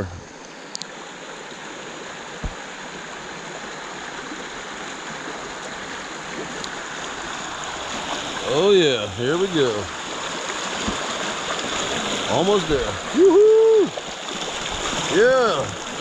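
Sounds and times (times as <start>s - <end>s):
creek water rushing: 0.0s - 16.0s
low thump: 2.4s - 2.6s.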